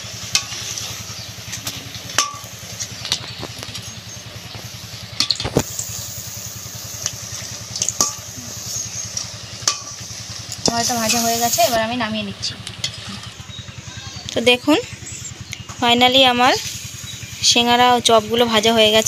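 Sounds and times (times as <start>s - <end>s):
low engine-like drone: 0.0s - 19.0s
metal spatula scraping wok: 0.3s - 1.3s
meat sizzling in oil: 4.4s - 11.7s.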